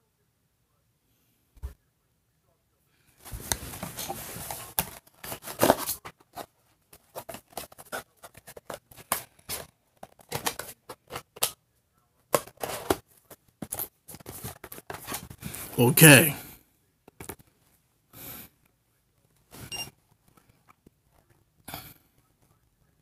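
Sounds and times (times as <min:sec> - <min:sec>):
phone and cardboard box handling: 0:03.3 - 0:11.5, 0:12.3 - 0:15.4.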